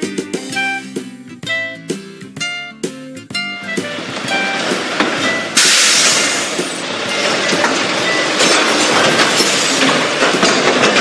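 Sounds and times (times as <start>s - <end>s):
garbage truck mechanical rattle: 3.7s - 11.0s.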